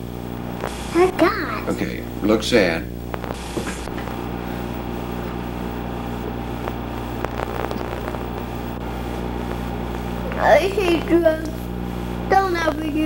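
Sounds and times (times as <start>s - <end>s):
constant hiss: 0.0s - 13.0s
low electrical hum: 0.0s - 13.0s
faint clicks: 6.6s - 8.8s.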